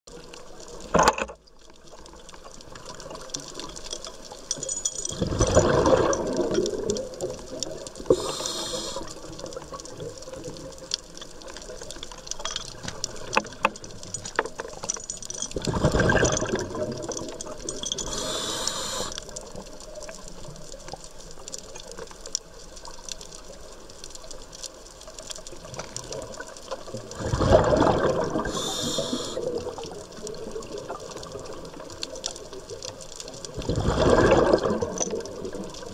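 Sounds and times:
fine crackle of clicks: 0.1s - 35.9s
exhaled bubbles rushing: 5.1s - 10.7s, 15.6s - 18.6s, 26.0s - 32.0s, 33.4s - 35.9s
regulator hiss: 8.0s - 9.4s, 18.0s - 19.3s, 28.4s - 29.6s.

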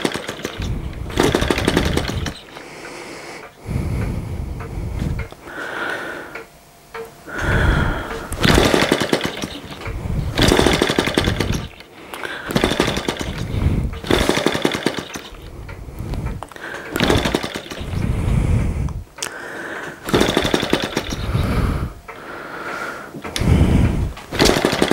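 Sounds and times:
model engine rapid ticking: 0.0s - 2.5s, 8.4s - 11.8s, 12.5s - 15.5s, 16.8s - 18.0s, 20.0s - 21.4s, 24.3s - 24.9s.

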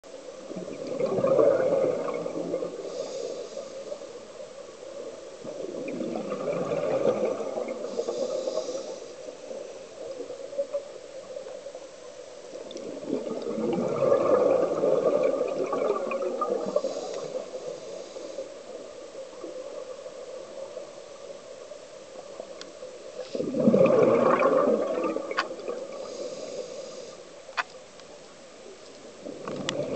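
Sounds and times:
exhaled air bubbling: 0.3s - 27.3s, 29.0s - 29.9s
scuba regulator breathing: 2.6s - 4.3s, 7.7s - 9.8s, 16.5s - 18.9s, 25.8s - 27.4s.

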